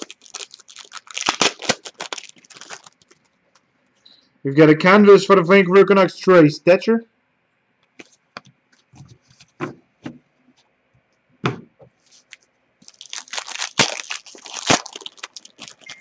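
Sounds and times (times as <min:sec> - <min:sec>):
foil pack tearing open: 0:00.0 - 0:03.2, 0:12.8 - 0:16.0.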